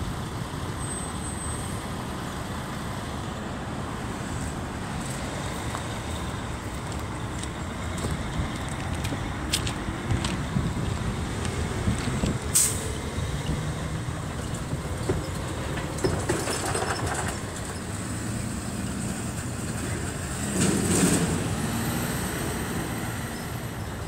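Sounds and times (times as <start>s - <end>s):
train cars rumbling on rails: 0.0s - 24.0s.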